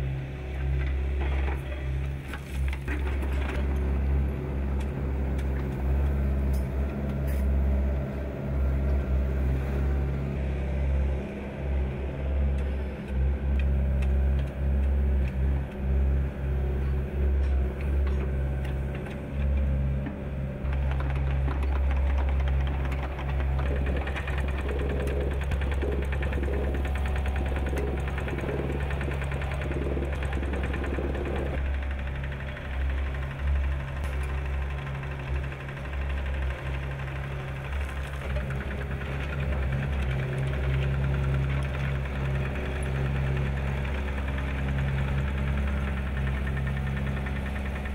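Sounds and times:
excavator diesel engine running: 0.0s - 47.9s
plate compactor rattling: 0.6s - 6.8s, 17.9s - 47.9s.

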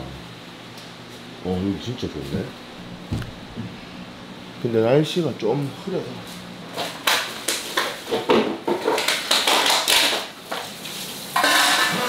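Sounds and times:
dishes clattering at a sink: 7.7s - 10.7s, 11.4s - 12.0s.

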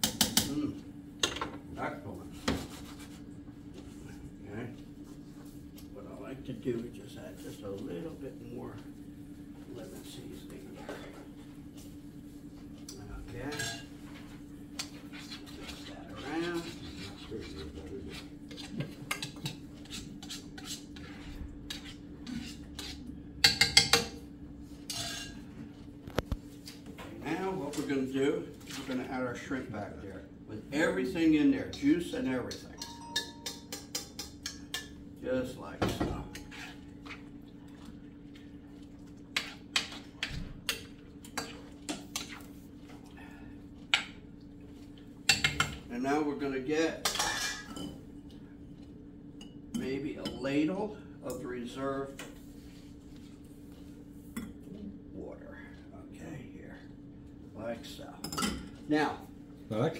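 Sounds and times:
steady low hum: 0.0s - 59.9s
metal spoon scraping a skillet: 14.8s - 23.0s, 24.8s - 25.4s.

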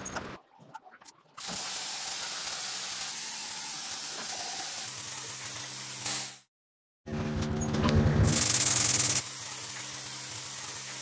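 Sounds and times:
paint spray gun hissing: 1.4s - 6.5s, 8.3s - 11.0s.

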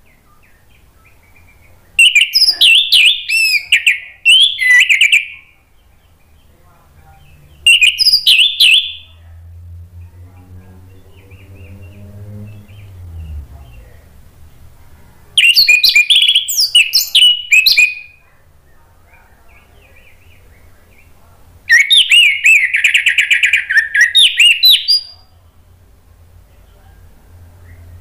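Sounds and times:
thrush singing whistled notes: 0.2s - 5.6s, 7.6s - 9.2s, 15.4s - 18.2s, 21.7s - 25.2s.

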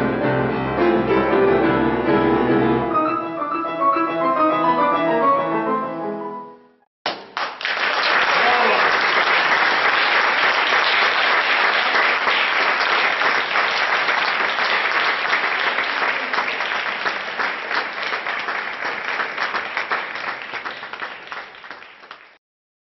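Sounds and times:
audience applauding: 7.1s - 22.4s.

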